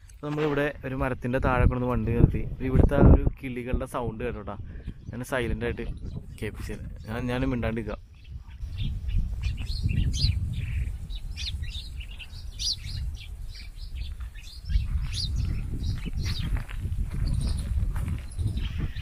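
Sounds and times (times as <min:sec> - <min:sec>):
small birds chirping: 0:03.4 - 0:19.0.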